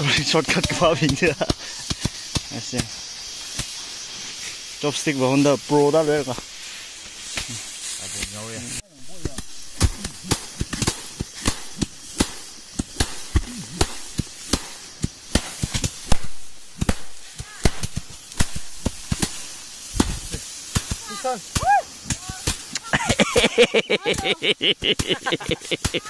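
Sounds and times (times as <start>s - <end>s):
rice stalks being threshed: 0.0s - 26.0s
person speaking: 22.2s - 26.0s.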